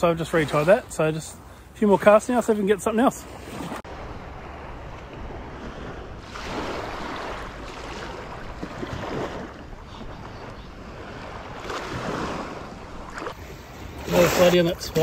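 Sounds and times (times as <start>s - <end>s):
shallow water sloshing: 3.2s - 15.0s.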